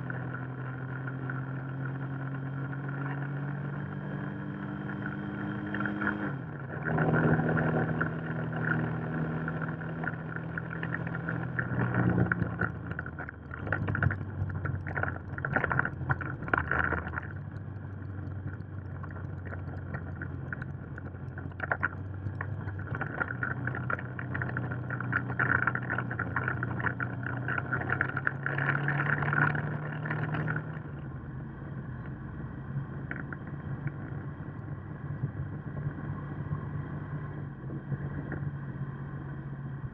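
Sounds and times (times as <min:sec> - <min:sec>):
motorcycle engine running: 0:00.0 - 0:39.9
wind on microphone: 0:33.0 - 0:39.9.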